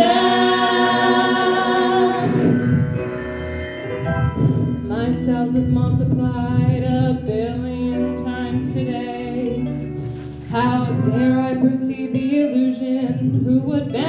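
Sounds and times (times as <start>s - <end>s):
gliding singing voices: 0.0s - 3.6s.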